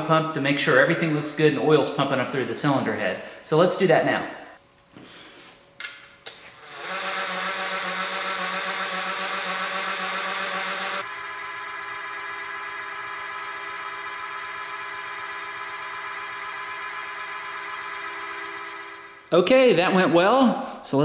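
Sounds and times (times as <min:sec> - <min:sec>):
cordless drill whirring: 0:06.6 - 0:19.3.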